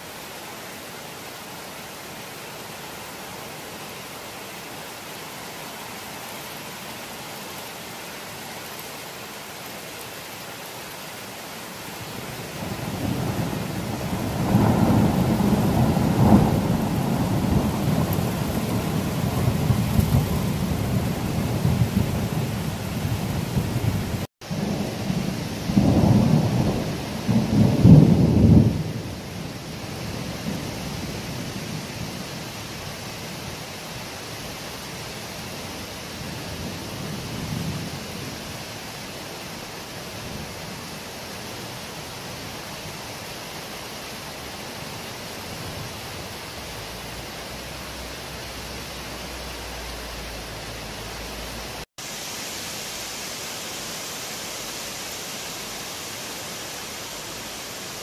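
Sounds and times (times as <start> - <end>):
steady rain: 0.0 - 58.0
thunder rumbling: 12.6 - 29.1.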